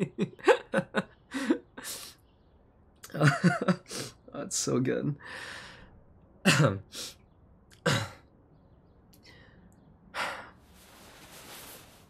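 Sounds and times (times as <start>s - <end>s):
man clearing his throat: 6.5s - 6.9s, 7.8s - 8.3s.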